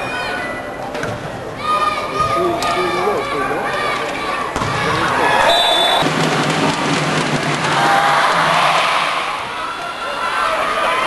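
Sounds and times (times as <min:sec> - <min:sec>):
crowd cheering: 0:01.6 - 0:11.0
crowd clapping: 0:05.9 - 0:08.8.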